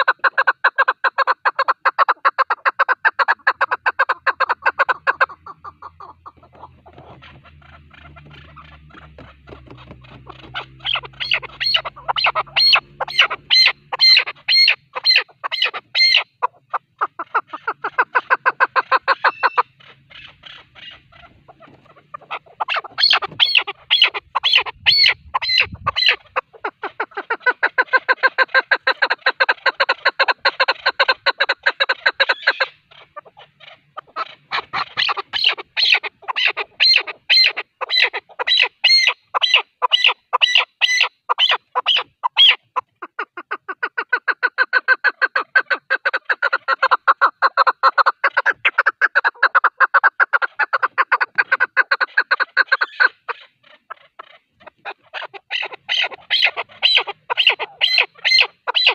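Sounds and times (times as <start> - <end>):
partridge clucking calls: 0.0 - 58.9.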